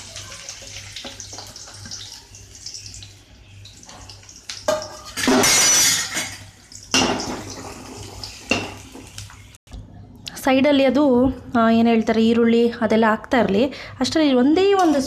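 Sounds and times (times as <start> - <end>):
onions sizzling in oil: 0.0 - 6.0, 6.7 - 9.6
metal cookware clattering: 4.7 - 8.9.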